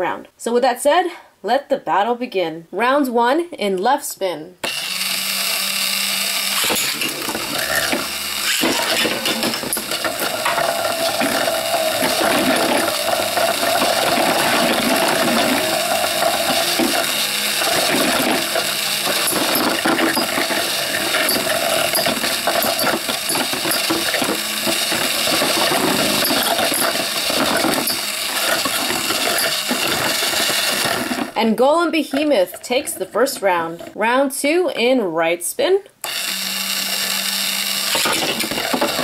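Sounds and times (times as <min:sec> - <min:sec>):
pitched hum: 0:04.6 - 0:31.4
spinning tops whirring and scraping: 0:04.7 - 0:31.4, 0:36.1 - 0:39.0.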